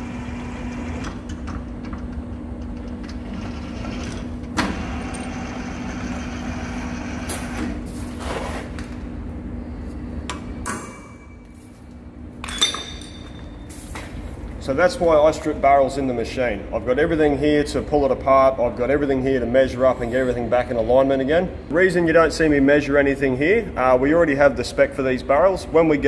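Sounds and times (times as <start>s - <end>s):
lathe humming: 3.2s - 7.3s.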